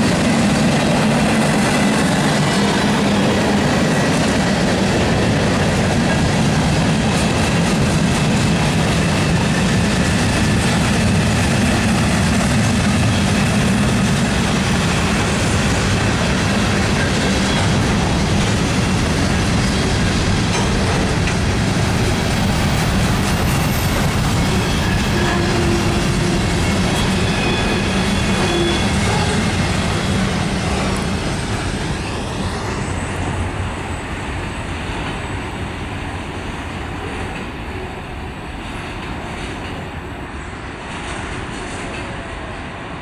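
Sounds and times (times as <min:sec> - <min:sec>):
train wheels rumbling on rails: 0:00.0 - 0:43.0
wheels clicking over rail joints: 0:15.4 - 0:21.8.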